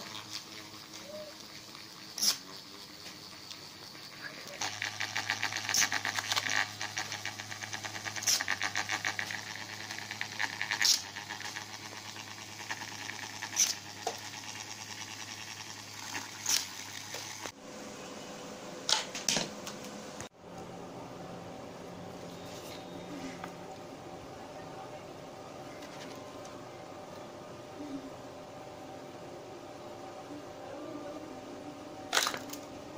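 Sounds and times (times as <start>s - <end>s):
small motors humming and rattling: 0.0s - 32.9s
quiet steady hum: 17.3s - 32.9s.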